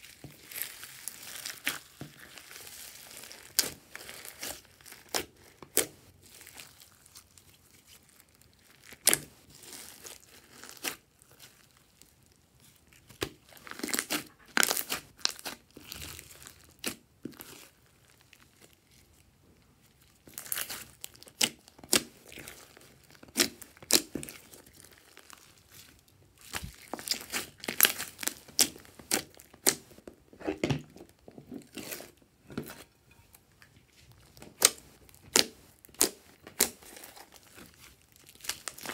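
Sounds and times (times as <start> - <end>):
slime crackling and squelching: 0.0 - 38.9.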